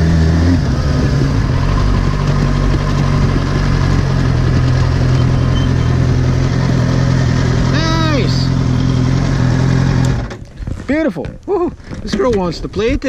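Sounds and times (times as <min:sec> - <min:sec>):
motorcycle engine running at low revs: 0:00.0 - 0:10.8.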